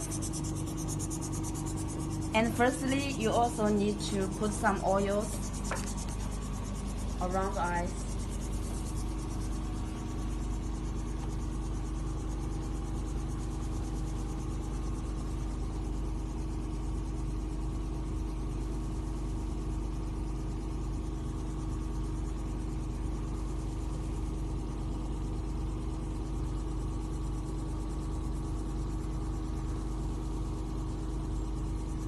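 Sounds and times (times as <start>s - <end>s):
vacuum pump electric hum: 0.0s - 32.0s.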